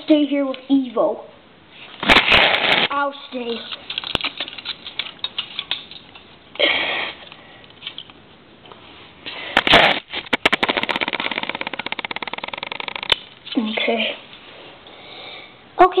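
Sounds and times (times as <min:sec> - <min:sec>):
plastic figure parts clicking: 0:03.6 - 0:06.2, 0:10.3 - 0:13.3
fast run of light clicks: 0:10.3 - 0:13.2.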